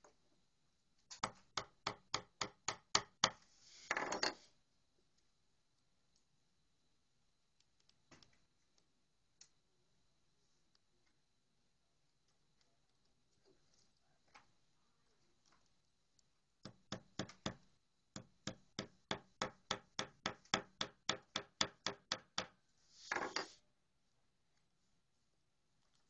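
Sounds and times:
hammer tapping wood: 0:01.2 - 0:03.4, 0:18.2 - 0:22.6.

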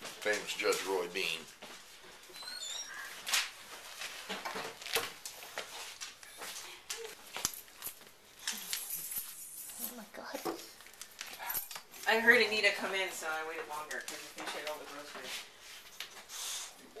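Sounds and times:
dog claws clicking on tiles: 0:04.2 - 0:12.1.

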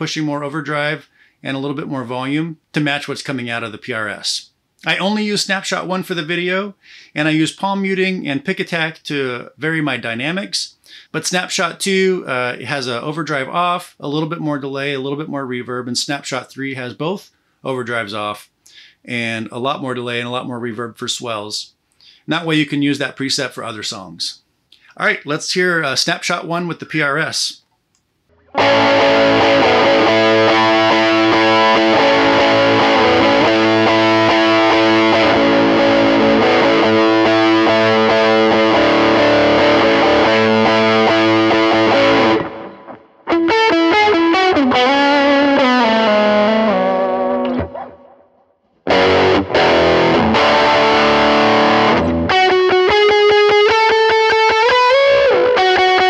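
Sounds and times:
overdriven electric guitar chords: 0:28.3 - 0:48.3, 0:48.9 - 0:56.0
guitar lead lines with bends: 0:28.3 - 0:56.0.

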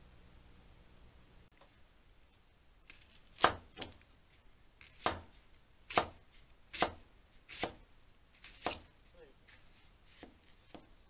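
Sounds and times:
knife slicing garlic on board: 0:02.9 - 0:04.0, 0:04.8 - 0:05.3, 0:05.9 - 0:07.8, 0:08.4 - 0:08.9, 0:10.1 - 0:10.9.

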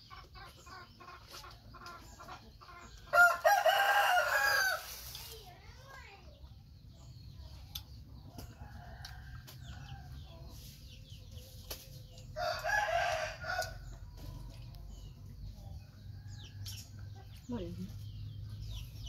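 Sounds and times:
rooster crowing: 0:03.1 - 0:04.8, 0:12.4 - 0:13.8.

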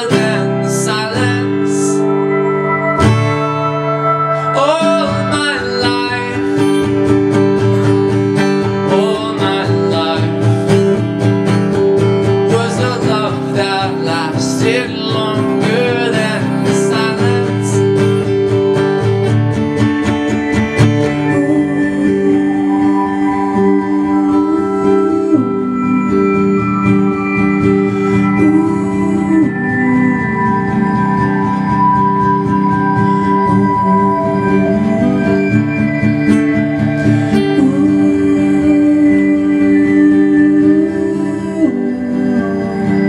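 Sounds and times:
man singing: 0:00.0 - 0:02.2, 0:04.3 - 0:11.1, 0:12.3 - 0:18.7, 0:21.0 - 0:26.8, 0:28.2 - 0:31.4, 0:33.3 - 0:35.8, 0:37.2 - 0:43.0
acoustic guitar strummed: 0:00.0 - 0:43.0.

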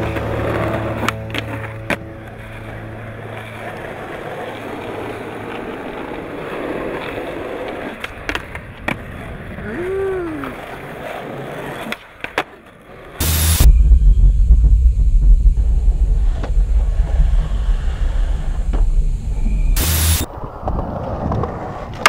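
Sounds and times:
skateboard clacks: 0:00.0 - 0:09.6, 0:10.4 - 0:13.2
skateboard wheels rolling on concrete: 0:00.0 - 0:13.6, 0:16.2 - 0:22.0
rising and falling pitched sound: 0:13.2 - 0:20.3.

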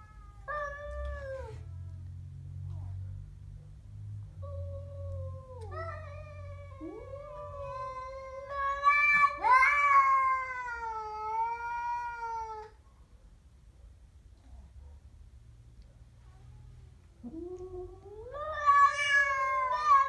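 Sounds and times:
cat growling yowl: 0:00.0 - 0:01.9, 0:04.4 - 0:12.8, 0:17.2 - 0:20.0.

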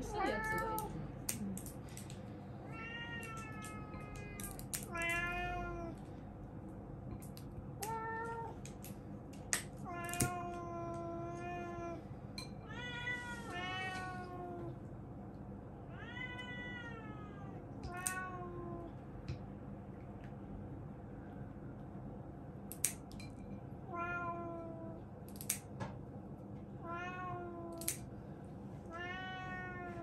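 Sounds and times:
cat meowing: 0:02.7 - 0:06.0, 0:15.9 - 0:18.9, 0:23.9 - 0:25.0, 0:26.8 - 0:27.9, 0:28.9 - 0:30.0
nail clipper clicks: 0:22.7 - 0:23.1, 0:25.3 - 0:25.7, 0:27.7 - 0:28.0.

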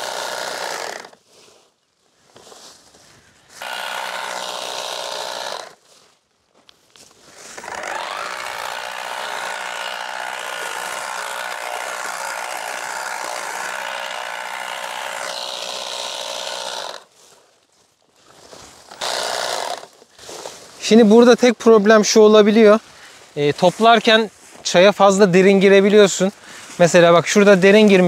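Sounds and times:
harvesting machine motor whine: 0:03.6 - 0:05.7, 0:07.6 - 0:17.0.

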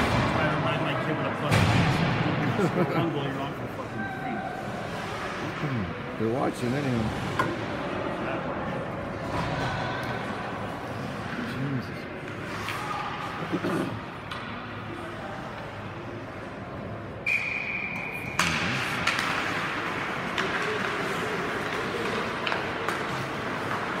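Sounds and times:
skates scraping ice: 0:04.6 - 0:05.6, 0:12.2 - 0:14.0, 0:18.4 - 0:24.0
hockey sticks clacking: 0:12.2 - 0:15.8, 0:17.3 - 0:24.0.

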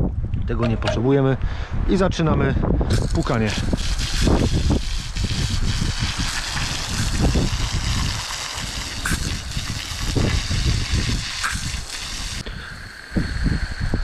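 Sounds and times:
hose spraying water on filter: 0:02.9 - 0:14.0.

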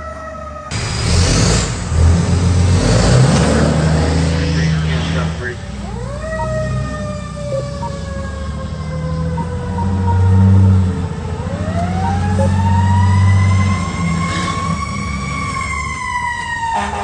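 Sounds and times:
truck engine drone: 0:00.0 - 0:17.0
fire truck siren winding: 0:05.8 - 0:17.0.

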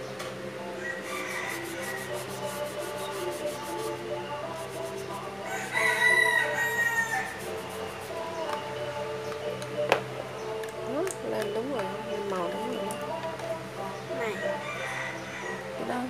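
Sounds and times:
background music: 0:00.0 - 0:16.0
rooster crowing: 0:00.8 - 0:03.8, 0:05.2 - 0:07.9, 0:14.2 - 0:15.9.

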